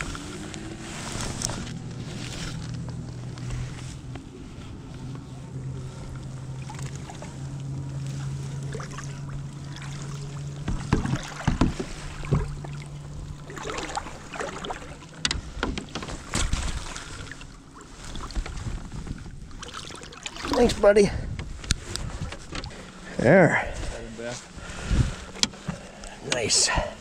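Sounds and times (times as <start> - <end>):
steady low hum: 0.0 - 19.8
water splashing at boat side: 0.0 - 27.0
sharp splashes and knocks: 6.1 - 23.0.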